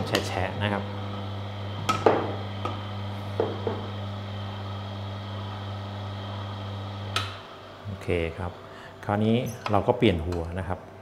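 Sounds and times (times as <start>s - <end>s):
juicer motor humming: 0.0s - 8.7s
knocks: 3.4s - 3.9s.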